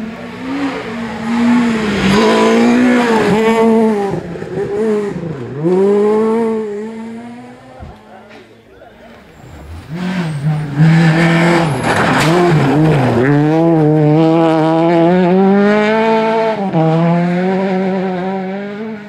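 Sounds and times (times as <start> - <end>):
rally car engine at high revs: 0.0 - 19.0.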